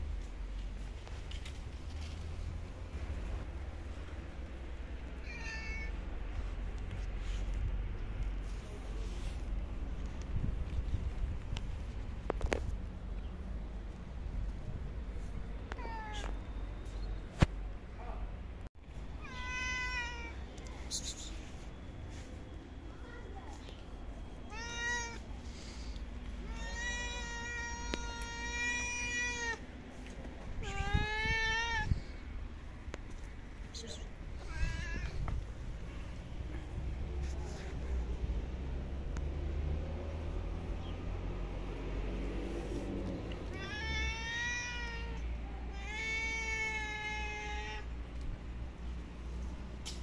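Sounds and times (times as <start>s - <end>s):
cats meowing: 5.1s - 6.1s, 15.7s - 16.5s, 19.2s - 20.5s, 24.4s - 25.3s, 26.3s - 29.6s, 30.6s - 32.1s, 34.3s - 35.4s, 43.4s - 48.0s.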